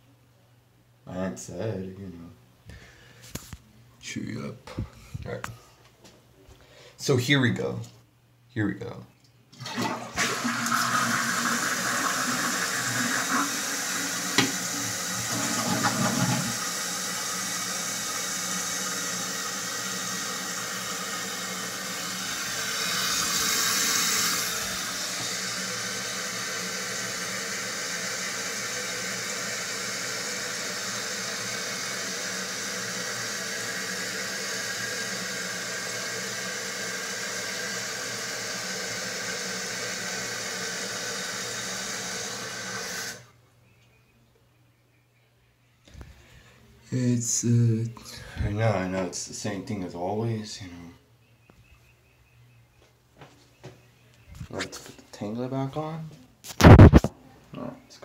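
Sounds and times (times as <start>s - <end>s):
toilet flushing: 9.5s - 43.3s
fill valve hissing: 9.6s - 43.3s.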